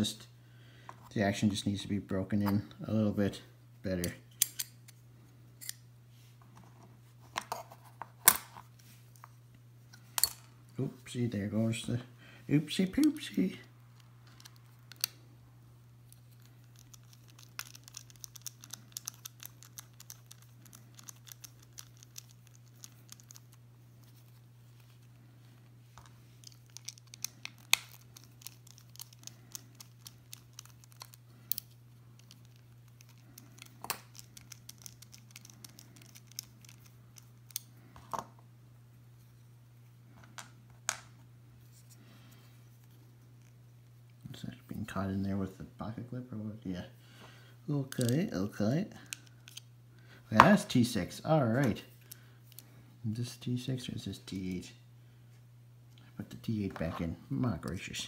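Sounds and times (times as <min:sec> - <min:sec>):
low steady hum: 0:00.0 - 0:58.0
bit driver clicks and scratches: 0:16.1 - 0:23.6, 0:26.4 - 0:37.6.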